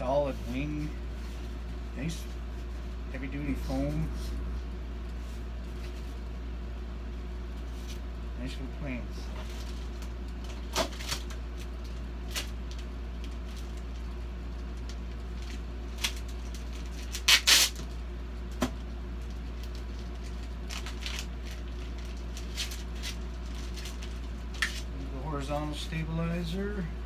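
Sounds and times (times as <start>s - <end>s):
plastic bags and paper crinkling: 9.2s - 18.0s, 19.2s - 26.0s.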